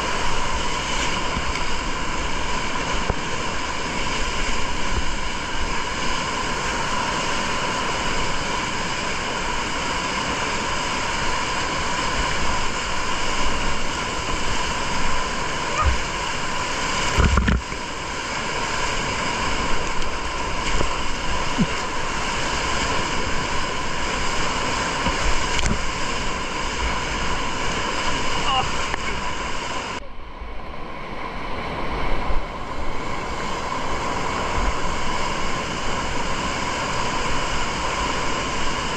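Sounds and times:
waves splashing over deck: 0.0 - 30.0, 30.6 - 38.9
whitewater rapids roaring: 0.0 - 38.9
wave thumping on bow: 15.7 - 16.2, 17.0 - 17.9, 19.8 - 22.2.

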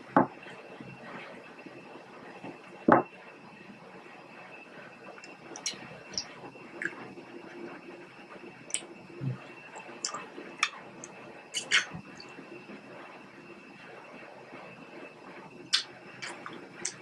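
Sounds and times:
wet mouth smacks and clicks: 11.6 - 11.9.

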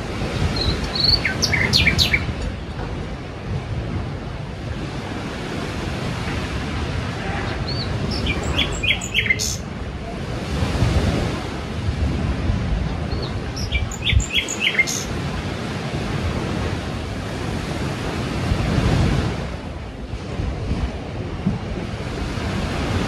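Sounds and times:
sea waves washing in: 0.0 - 23.0
birds chirping: 0.3 - 2.4, 7.4 - 9.6, 13.1 - 15.2.

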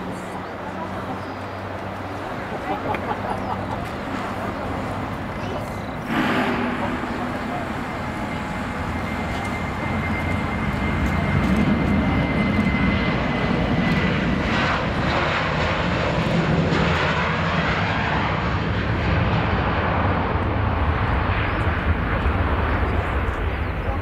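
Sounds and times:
jet engines roaring: 0.0 - 24.0.

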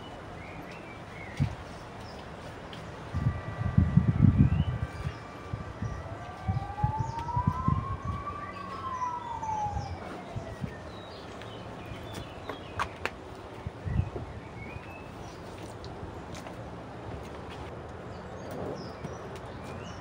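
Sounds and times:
distant siren wailing: 3.1 - 11.4.

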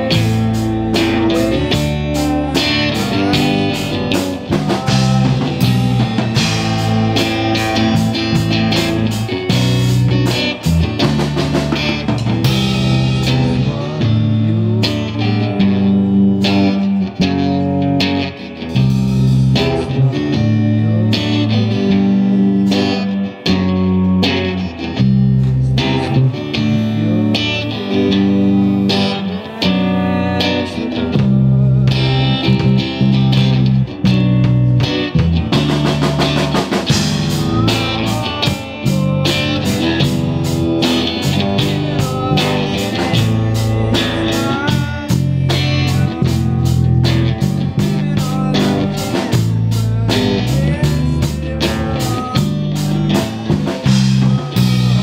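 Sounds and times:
drumming: 0.0 - 13.6, 32.0 - 55.0
live rock band playing: 0.0 - 55.0.

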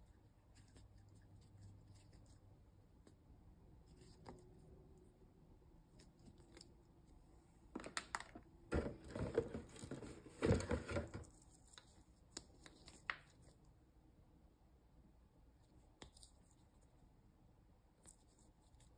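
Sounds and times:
plastic balls set down: 7.7 - 11.3.

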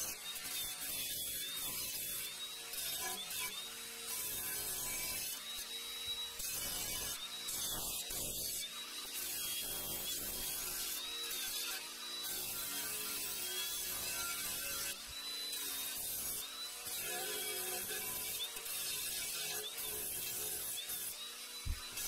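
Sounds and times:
belt file grinding steel: 0.0 - 22.0.

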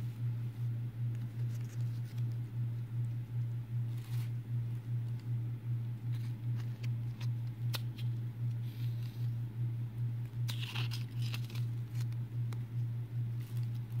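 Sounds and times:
loud low pulsing hum: 0.0 - 14.0
paper crinkle: 1.1 - 2.5, 3.8 - 4.4, 10.4 - 12.2, 13.3 - 14.0
paper leaflet being folded: 1.1 - 2.5, 6.0 - 9.3, 10.4 - 12.2.

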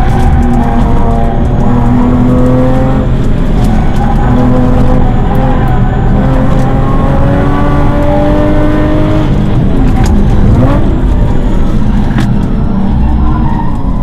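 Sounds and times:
car engine accelerating and braking: 0.0 - 14.0.

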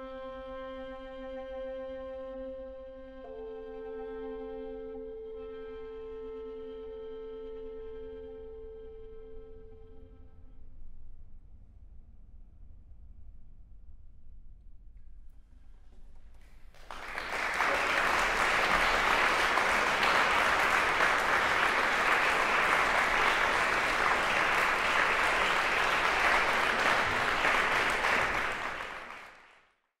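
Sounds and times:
audience applauding: 16.6 - 29.7.

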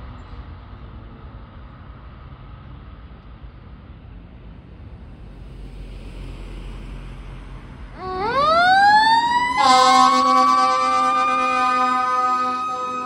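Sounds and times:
faint road and wind noise: 0.0 - 13.0
fire engine siren wailing: 7.9 - 13.0
fire truck horn blast: 8.0 - 13.0.

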